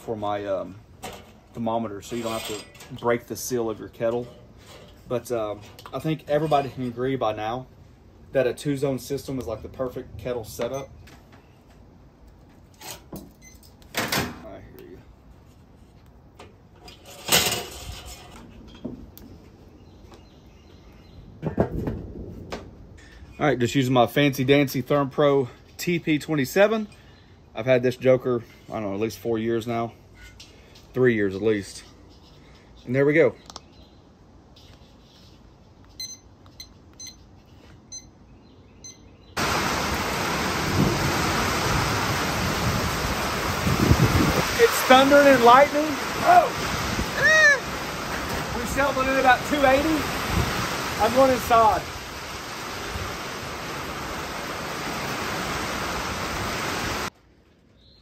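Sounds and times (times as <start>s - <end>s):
steel grate clattering: 1.0s - 3.4s, 16.8s - 18.8s
low rumble of thunder: 21.3s - 23.6s
heavy rain pouring: 39.4s - 57.1s.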